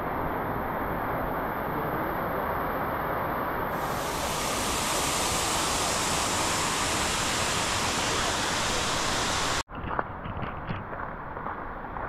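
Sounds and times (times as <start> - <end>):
waterfall roaring: 3.7 - 9.6.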